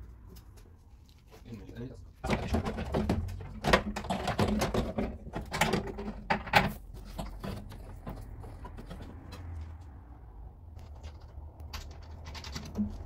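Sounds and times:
plastic and metal parts rattling: 0:02.1 - 0:09.6, 0:10.8 - 0:13.0.

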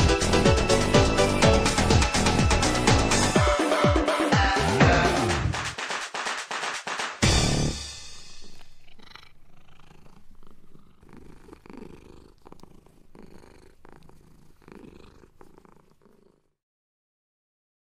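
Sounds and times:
cat purring: 0:08.0 - 0:16.6.

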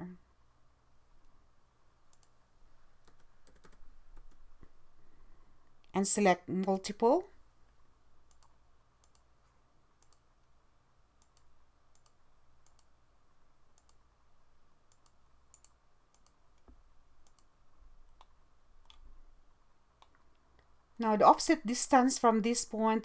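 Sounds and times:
low steady hum: 0:00.0 - 0:23.0
computer mouse clicks: 0:02.1 - 0:02.4, 0:03.0 - 0:04.8, 0:08.3 - 0:09.3, 0:10.0 - 0:10.3, 0:11.2 - 0:12.9, 0:13.7 - 0:14.0, 0:14.9 - 0:17.5, 0:18.1 - 0:19.1.

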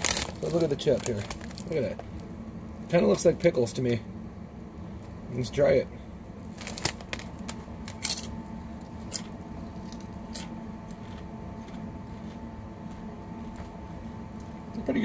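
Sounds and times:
chewing crunchy potato chip: 0:00.0 - 0:02.2, 0:06.5 - 0:15.0.

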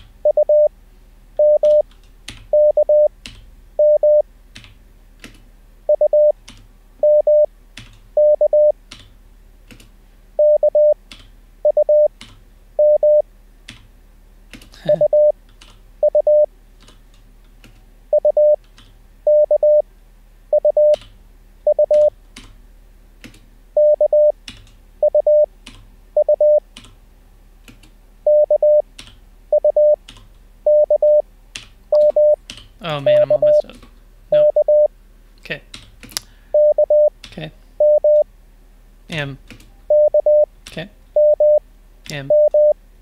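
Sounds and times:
morse code beeps: 0:00.2 - 0:00.7, 0:01.4 - 0:01.8, 0:02.5 - 0:03.1, 0:03.8 - 0:04.2, 0:05.9 - 0:06.4, 0:07.0 - 0:07.5, 0:08.2 - 0:08.8, 0:10.4 - 0:11.0, 0:11.6 - 0:12.1, 0:12.8 - 0:13.2, 0:15.0 - 0:15.3, 0:16.0 - 0:16.5, 0:18.1 - 0:18.6, 0:19.3 - 0:19.8, 0:20.5 - 0:21.0, 0:21.7 - 0:22.1, 0:23.8 - 0:24.4, 0:25.0 - 0:25.5, 0:26.2 - 0:26.6, 0:28.3 - 0:28.8, 0:29.5 - 0:30.0, 0:30.7 - 0:31.2, 0:31.9 - 0:32.4, 0:34.3 - 0:34.9, 0:36.6 - 0:37.1, 0:37.8 - 0:38.2, 0:39.9 - 0:40.5, 0:41.2 - 0:41.6, 0:42.3 - 0:42.8.

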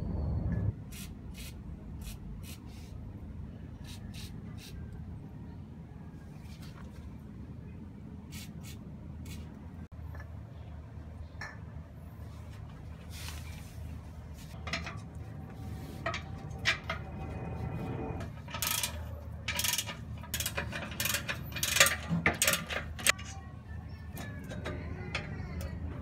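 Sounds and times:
low steady hum: 0:08.9 - 0:26.0
metallic clicks and knocks of wrench: 0:18.4 - 0:23.3.

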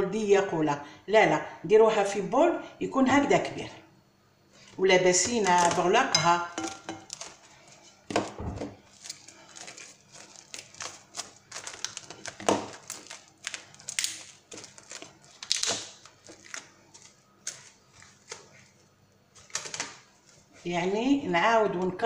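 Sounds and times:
cling film crinkling: 0:04.6 - 0:06.0, 0:06.6 - 0:20.7.

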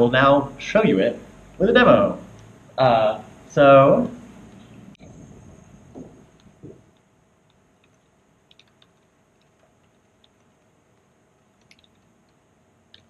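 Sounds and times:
laptop keyboard clicks: 0:06.3 - 0:12.1.

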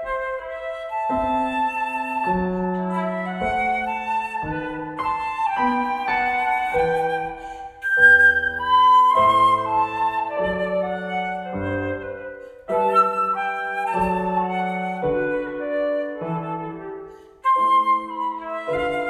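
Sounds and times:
flute playing slow melody: 0:00.0 - 0:19.0.

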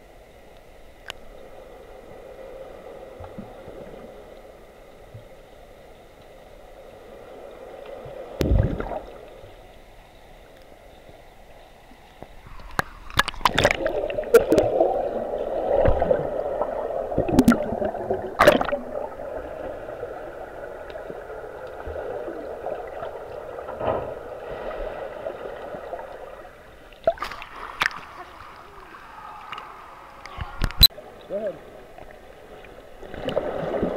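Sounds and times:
water churning and bubbling: 0:00.0 - 0:10.1, 0:12.2 - 0:33.9
low underwater hum: 0:00.0 - 0:33.9
thump: 0:23.8 - 0:24.2.

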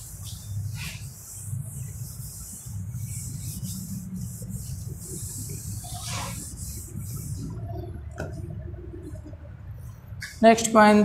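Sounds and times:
eraser wiping whiteboard: 0:00.0 - 0:07.5
steady low hum: 0:00.0 - 0:11.0.

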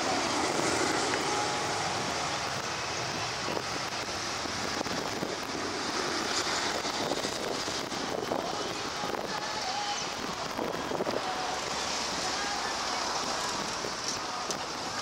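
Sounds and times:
jet roar: 0:00.0 - 0:09.4.

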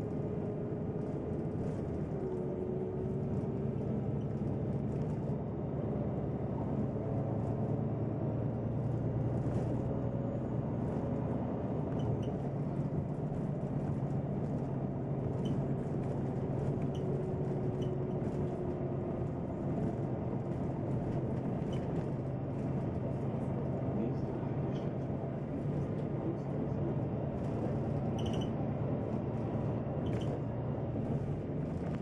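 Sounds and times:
bus engine drone: 0:00.0 - 0:32.0
interior rattles and clicks: 0:10.8 - 0:32.0.

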